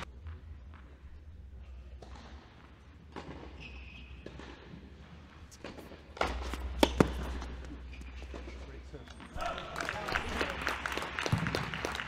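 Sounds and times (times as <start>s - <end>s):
indoor hall hum: 0.0s - 12.0s
tennis ball bouncing on court: 5.6s - 8.6s.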